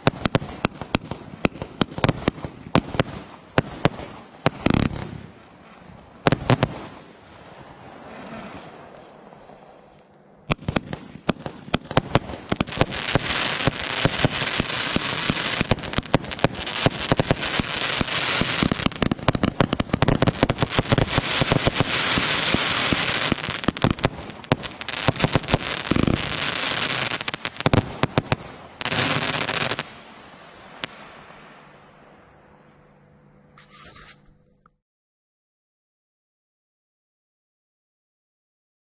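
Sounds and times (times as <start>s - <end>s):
rapid volley of firework shots: 10.5s - 29.9s.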